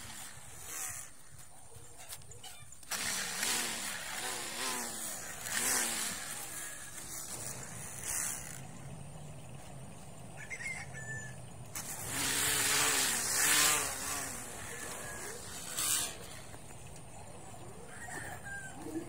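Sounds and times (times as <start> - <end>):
string trimmer motor humming: 0.0 - 1.4, 2.8 - 10.2, 11.7 - 17.4
trimmer line cutting grass: 0.0 - 10.0, 11.7 - 17.8.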